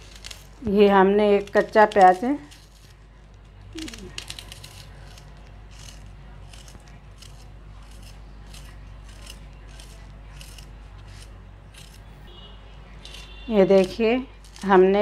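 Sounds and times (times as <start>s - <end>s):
knife slicing onion: 3.8s - 12.1s, 13.0s - 15.0s.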